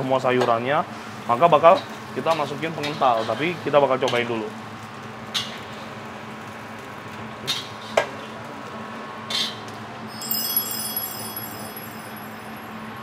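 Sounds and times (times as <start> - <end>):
chimes ringing: 10.1 - 13.0.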